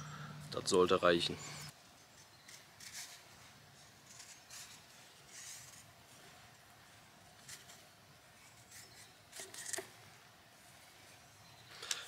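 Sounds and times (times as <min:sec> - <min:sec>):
knife scraping a stick: 0:01.4 - 0:06.3, 0:07.4 - 0:10.0
bark strips being peeled: 0:08.5 - 0:09.9.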